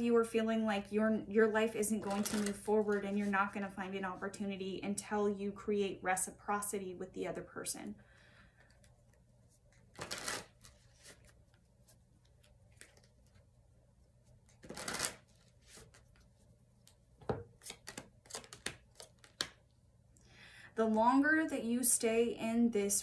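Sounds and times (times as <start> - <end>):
cards tapping and clicking: 17.2 - 19.6.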